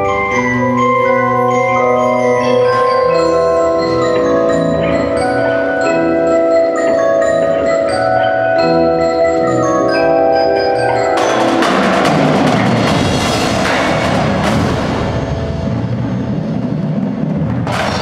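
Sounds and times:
marimba and chimes chords: 0.0s - 17.1s
snare and tenor drumming: 11.0s - 18.0s.

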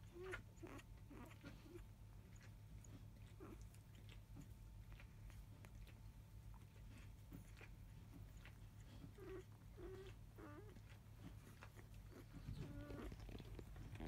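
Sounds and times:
puppy squeaking: 11.5s - 14.0s.

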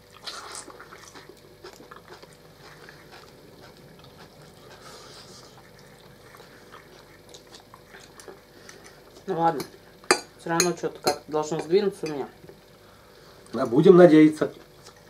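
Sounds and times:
soft chewing: 0.0s - 10.0s, 14.4s - 15.0s.

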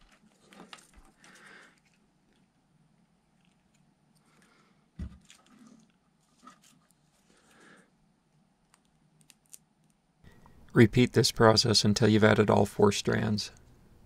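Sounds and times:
faint handling noises: 0.0s - 10.6s.

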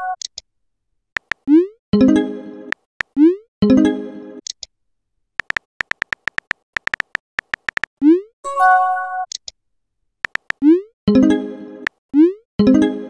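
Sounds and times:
keyboard tap clicks: 1.2s - 1.4s, 5.4s - 7.9s, 10.2s - 10.6s.

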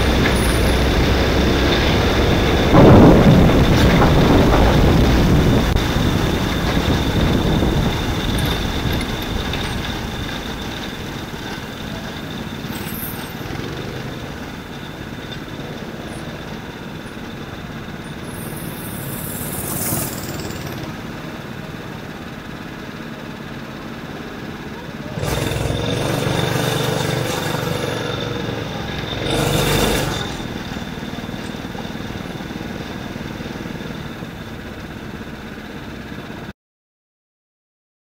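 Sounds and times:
thin high whine: 0.0s - 23.3s
tyre noise on wet track: 0.0s - 36.4s
kart engine running: 0.0s - 36.5s.

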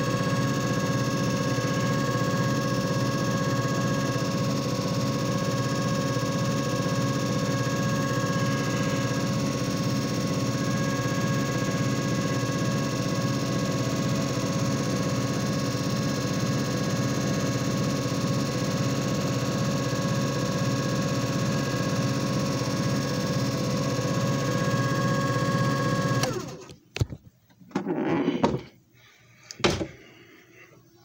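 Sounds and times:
machine motor hum: 0.0s - 26.7s.

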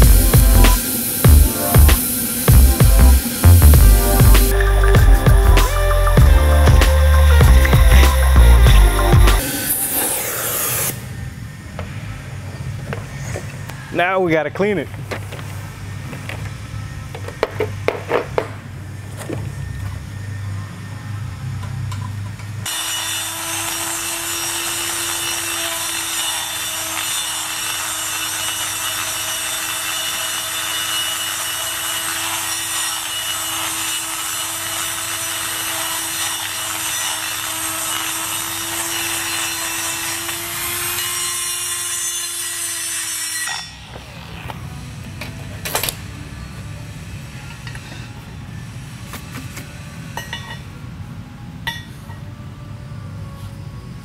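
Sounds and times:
die grinder grinding steel: 0.0s - 11.1s, 22.7s - 45.1s.

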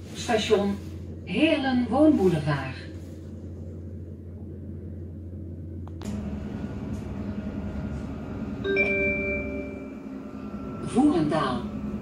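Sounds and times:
train interior hum: 0.0s - 12.0s
announcement chime: 8.6s - 9.9s.

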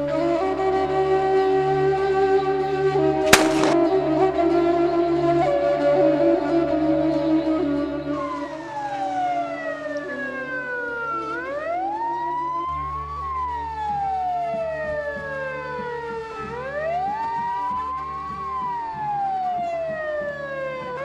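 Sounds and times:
ambulance siren wailing: 17.0s - 21.0s.

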